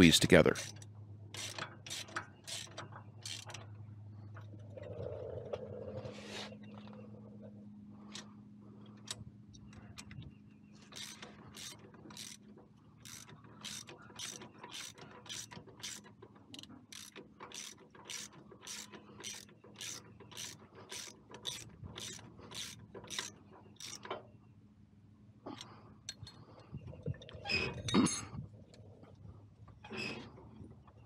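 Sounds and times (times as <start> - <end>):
hand ratchet clicking: 1.4 - 3.6, 10.9 - 12.4, 13.0 - 24.0.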